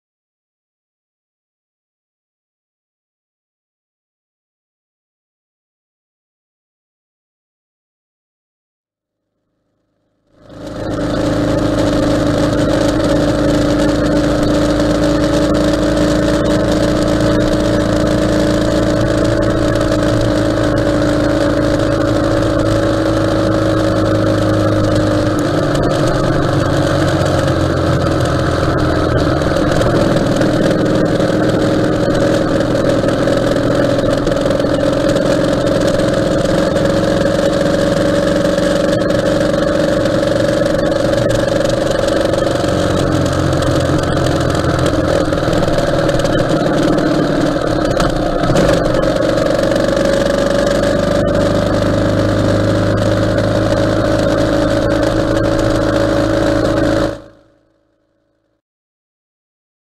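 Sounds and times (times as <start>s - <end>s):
motorcycle engine running: 10.3s - 57.7s
road noise: 10.4s - 57.4s.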